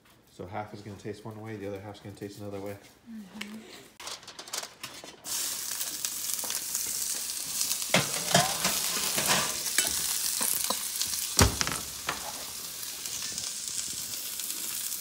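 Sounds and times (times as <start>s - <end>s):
onions sizzling in a frying pan: 5.2s - 15.0s
metal tray clattering: 7.9s - 10.8s
oven door shutting: 11.4s - 12.1s.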